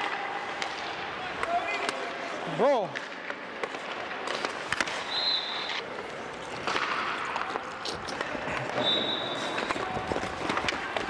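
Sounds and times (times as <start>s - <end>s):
sticks and pucks clacking: 0.0s - 11.0s
skate blades scraping ice: 3.0s - 11.0s.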